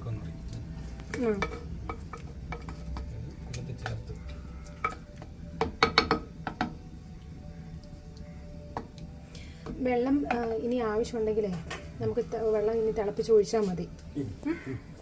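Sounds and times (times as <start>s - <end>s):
sharp knocks against a pot: 1.1s - 3.1s, 4.8s - 6.8s, 8.7s - 9.0s, 9.6s - 10.6s.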